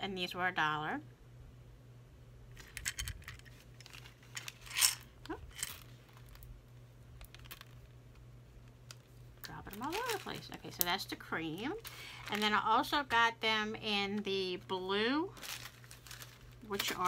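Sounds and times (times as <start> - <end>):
glass beads clicking and rattling: 2.6 - 5.8
beads spilling onto felt mat: 2.6 - 7.9, 15.3 - 17.0.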